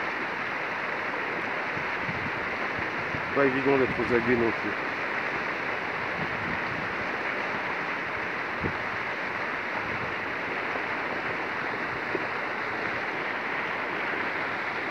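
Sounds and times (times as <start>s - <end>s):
river flowing over rocks: 0.0s - 14.9s.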